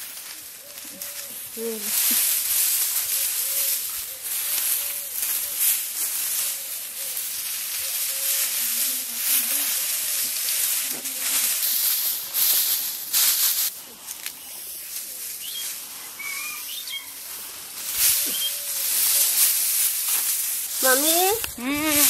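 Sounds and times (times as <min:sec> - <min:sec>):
dry stalks rustling: 0:00.0 - 0:22.0
bird chirps: 0:15.4 - 0:17.2, 0:18.2 - 0:18.8.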